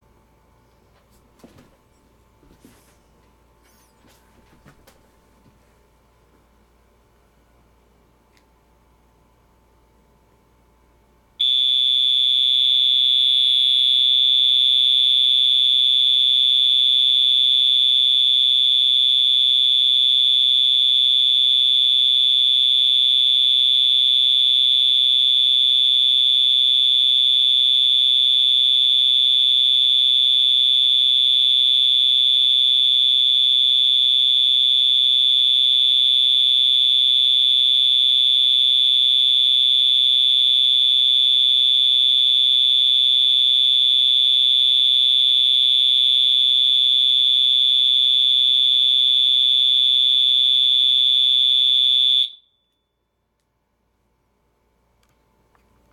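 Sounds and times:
fire alarm horn steady tone: 11.4 - 53.0.

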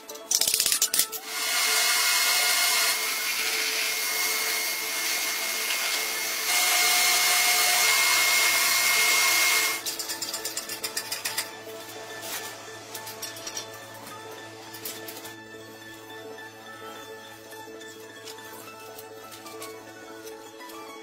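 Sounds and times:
power tool whining: 1.2 - 9.9.

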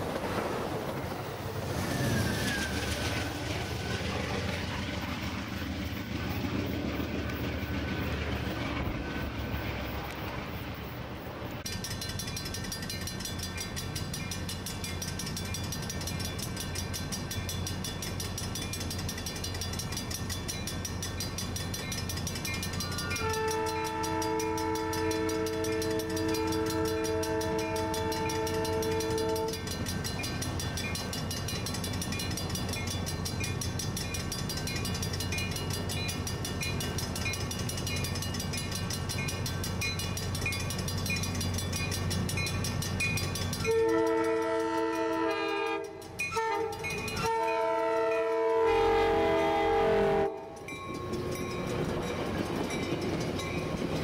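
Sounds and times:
train rumble: 0.0 - 54.0
crossing bell dinging: 11.6 - 54.0
train horn: 23.0 - 29.7, 43.7 - 50.6.

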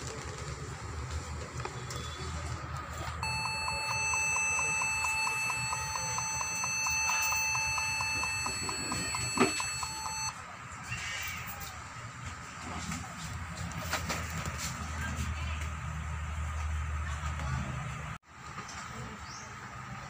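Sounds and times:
high electronic beep: 3.2 - 10.3.

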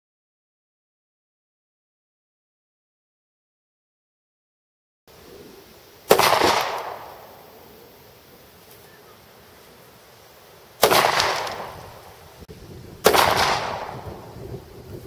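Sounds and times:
gunshots with echo: 6.1 - 7.6, 10.8 - 12.1, 13.0 - 14.4.

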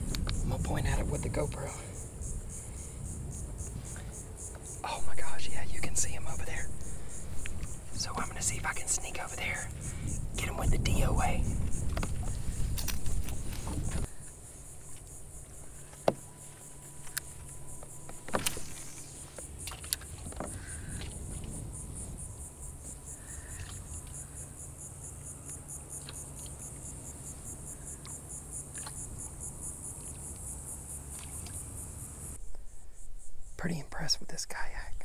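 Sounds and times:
low steady rumble: 0.0 - 26.0
insects buzzing: 0.0 - 35.0.

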